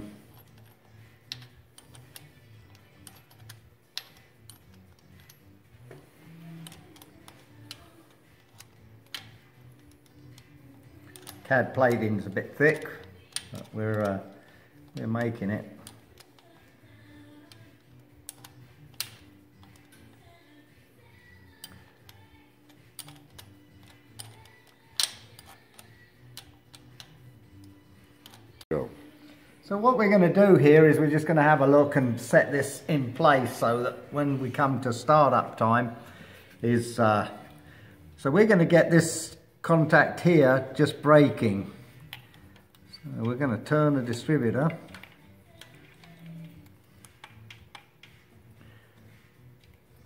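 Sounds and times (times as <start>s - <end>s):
small metallic clicks: 12.7s - 20.2s, 21.5s - 28.7s, 44.6s - 48.3s.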